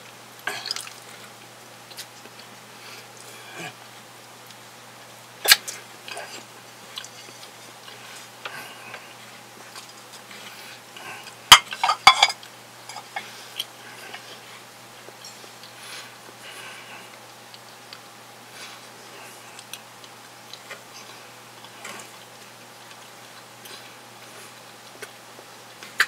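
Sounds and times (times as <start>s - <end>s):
crockery and cutlery clinking: 11.5s - 13.2s.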